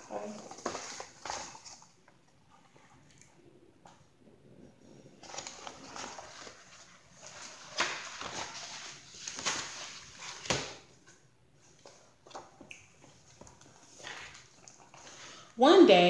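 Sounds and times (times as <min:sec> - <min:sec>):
book pages rustling: 0:00.0 - 0:03.1, 0:05.2 - 0:15.4.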